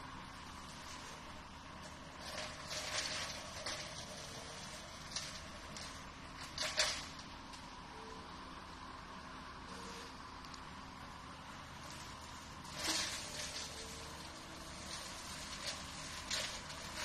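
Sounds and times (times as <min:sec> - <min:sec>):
blades shredding branches: 0:00.0 - 0:07.8, 0:11.3 - 0:17.0
brush cutter humming: 0:11.0 - 0:17.0.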